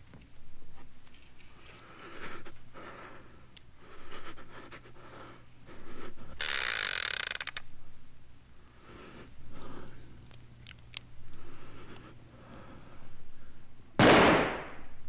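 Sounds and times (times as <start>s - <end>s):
heavy slow breathing: 1.4s - 6.8s, 7.7s - 10.4s, 11.2s - 13.9s.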